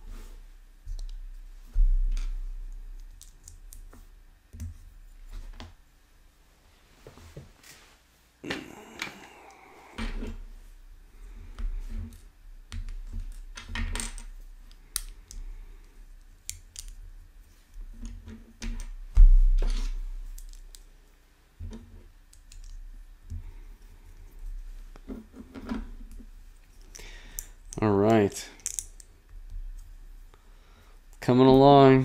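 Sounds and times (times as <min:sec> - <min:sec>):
plastic bricks clicking: 0:28.6 - 0:29.0.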